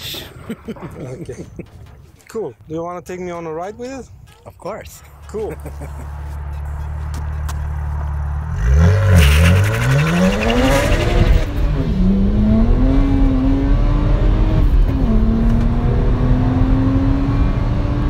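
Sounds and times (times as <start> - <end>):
car engine revving: 5.5 - 18.0.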